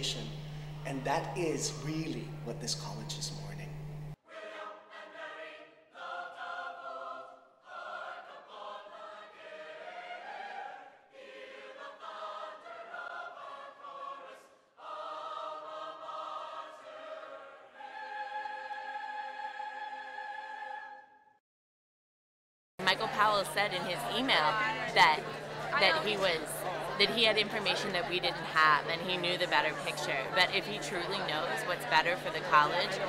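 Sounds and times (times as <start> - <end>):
choir singing: 4.2 - 21.2, 22.8 - 33.0.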